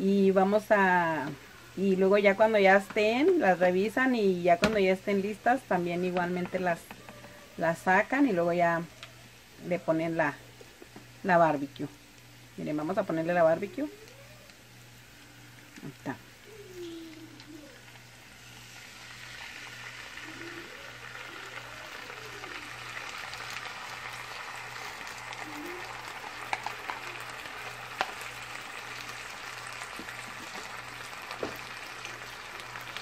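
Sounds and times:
meat sizzling in a frying pan: 0.0 - 33.0.

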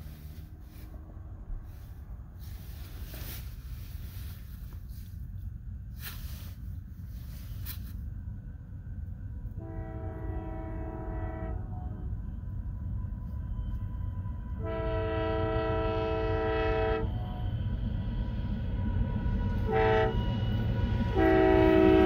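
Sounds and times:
steady low rumble: 0.0 - 16.2
locomotive horn blasts: 9.6 - 12.2, 14.5 - 17.4, 19.6 - 20.3, 21.1 - 22.0.

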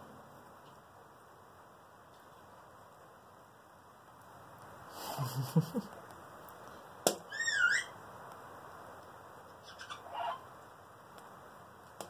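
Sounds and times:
cockatoo squeaky call: 7.3 - 8.0, 9.6 - 10.4.

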